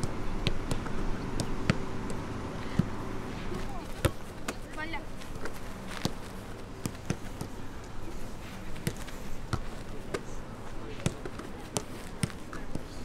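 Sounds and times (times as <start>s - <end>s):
footballs being kicked: 0.4s - 7.7s, 8.6s - 13.0s.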